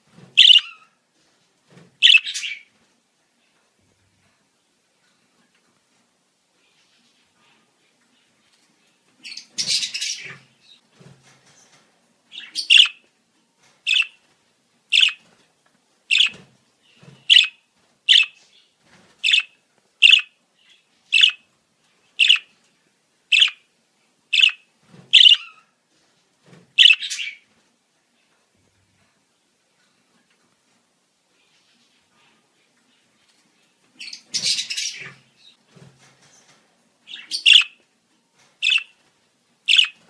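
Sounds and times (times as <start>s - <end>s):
budgerigar chirps: 0.4s - 0.8s, 12.5s - 13.0s, 15.0s - 15.2s, 16.1s - 16.3s, 17.3s - 17.5s, 18.1s - 18.4s, 19.3s - 20.3s, 21.2s - 21.4s, 22.2s - 22.5s, 23.3s - 23.6s, 24.4s - 24.6s, 25.2s - 25.5s, 26.8s - 27.4s, 37.2s - 37.7s, 38.6s - 38.9s, 39.7s - 40.0s.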